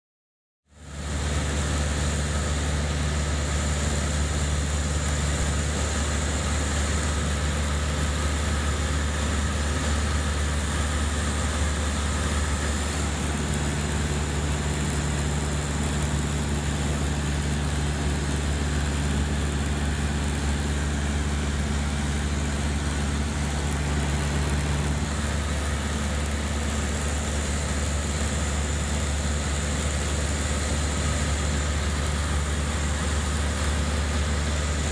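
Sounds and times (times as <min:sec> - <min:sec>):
airplane engine droning: 0:00.8 - 0:34.9.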